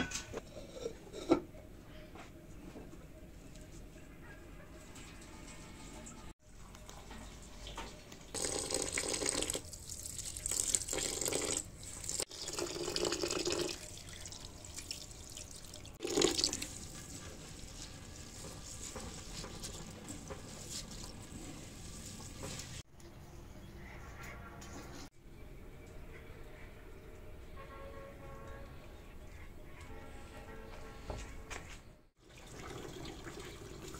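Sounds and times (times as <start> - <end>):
water running and splashing: 7.3 - 22.9.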